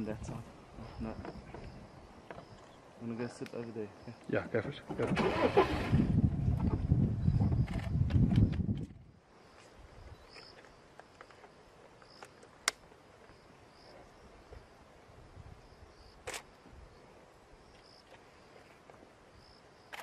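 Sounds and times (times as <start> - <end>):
crickets chirping: 0.0 - 20.0
sharp clicks: 16.2 - 16.5.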